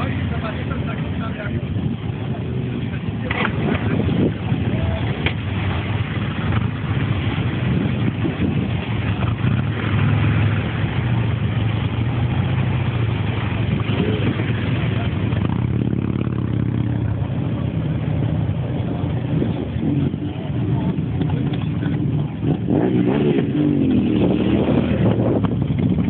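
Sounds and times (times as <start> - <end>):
motorcycle engines idling: 0.0 - 26.0.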